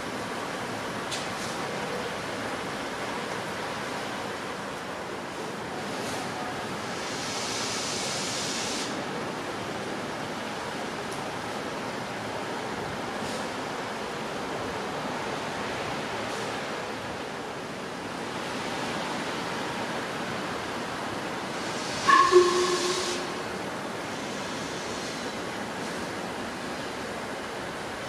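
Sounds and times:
steam hissing: 6.8 - 9.0, 21.5 - 26.1
steam whistle toot: 21.9 - 23.5.

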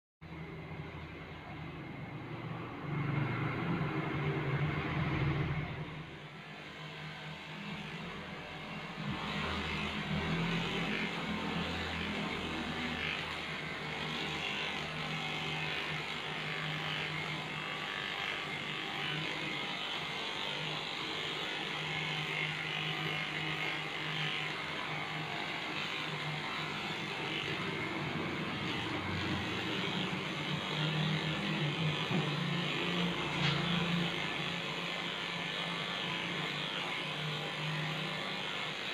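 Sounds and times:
electric dog clipper buzzing: 2.4 - 38.9.

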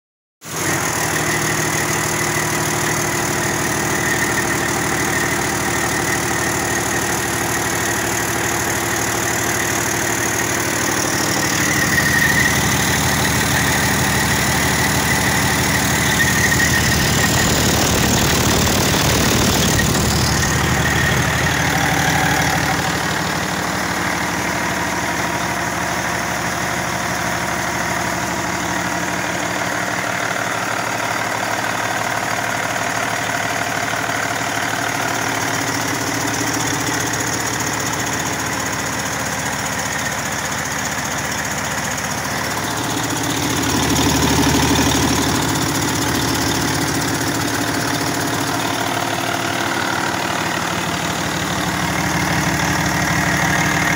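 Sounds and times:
diesel engine clatter: 0.5 - 53.9.

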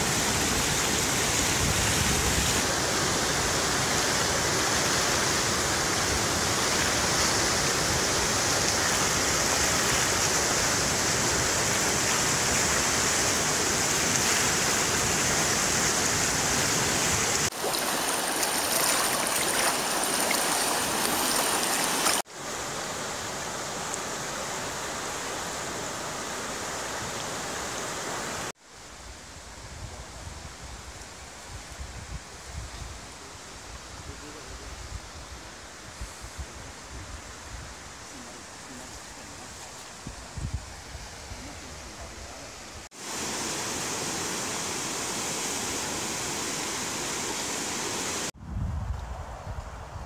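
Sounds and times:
wind on microphone: 0.0 - 2.7, 29.0 - 42.5, 48.4 - 50.0
water rushing over rocks: 0.0 - 28.5, 41.2 - 48.3.

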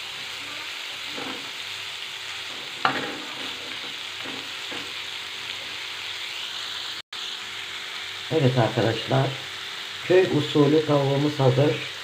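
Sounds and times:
chicken sizzling in oil: 0.0 - 12.0
wooden spatula scraping pan: 1.0 - 1.6, 2.3 - 5.8
knock against pan: 2.5 - 5.0.

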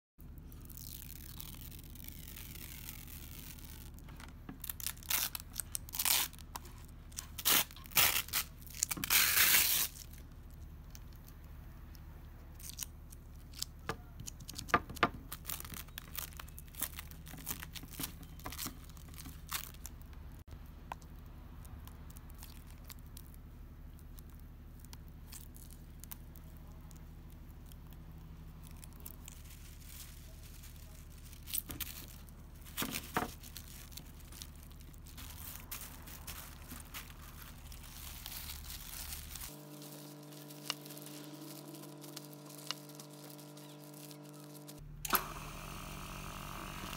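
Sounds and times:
plastic film crinkling: 0.2 - 44.8
film peeling tearing rustles: 0.5 - 20.2, 21.1 - 45.2.

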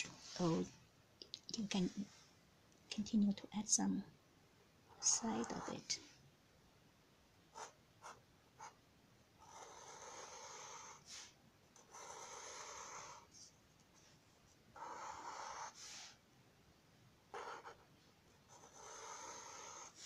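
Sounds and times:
marker scratching on paper: 17.4 - 17.9.

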